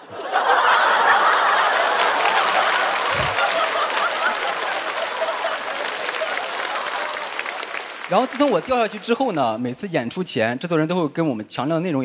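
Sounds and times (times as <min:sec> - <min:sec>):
audience laughing and applauding: 0:00.0 - 0:09.5.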